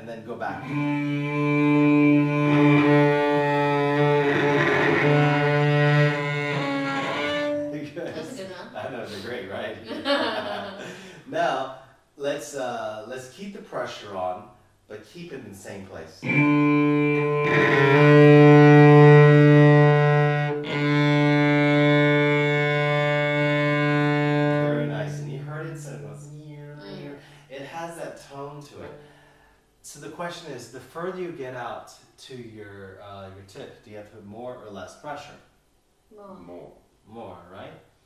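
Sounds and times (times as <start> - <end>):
cellos bowing sustained note: 0.4 - 9.0, 16.2 - 27.5.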